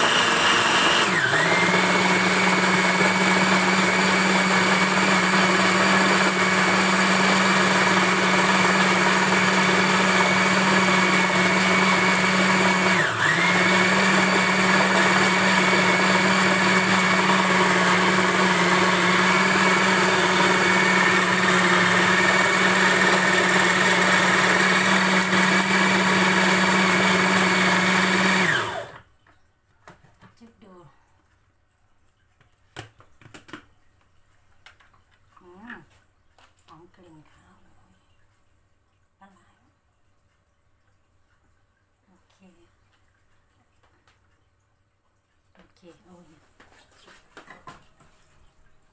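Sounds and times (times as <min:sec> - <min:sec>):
blender motor grinding: 0:00.0 - 0:29.0.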